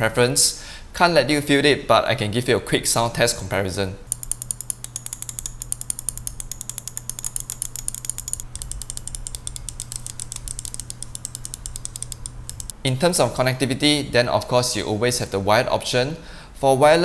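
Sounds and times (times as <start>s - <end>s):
mouse button clicking: 4.1s - 12.8s.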